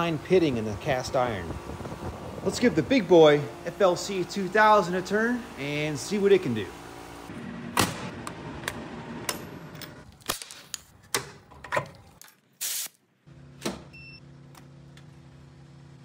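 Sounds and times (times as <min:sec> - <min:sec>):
machine electrical hum: 0:00.0 - 0:10.1.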